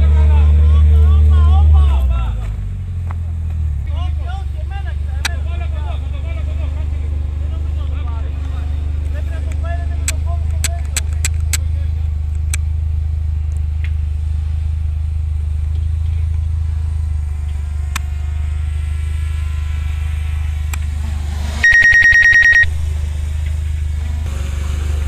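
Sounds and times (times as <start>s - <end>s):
vehicle engine rumble: 0.0s - 25.0s
electronic ringing trill: 21.6s - 22.8s.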